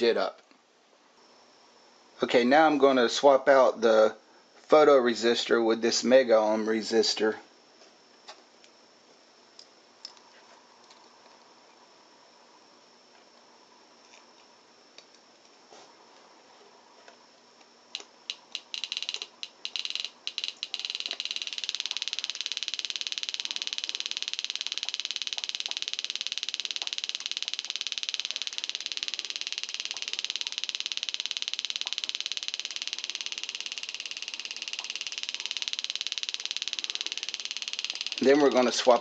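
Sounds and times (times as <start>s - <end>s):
small speaker rapid clicking: 17.9s - 39.0s.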